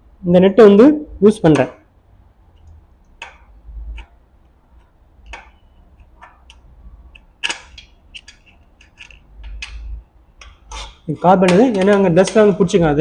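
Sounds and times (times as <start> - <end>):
screwdriver tapping metal: 4.8 - 10.7, 11.4 - 12.8.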